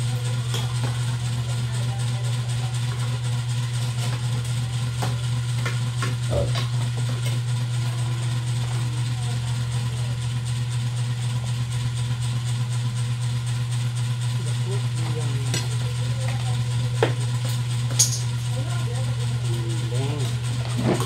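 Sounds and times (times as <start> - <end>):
steady low hum: 0.0 - 12.2.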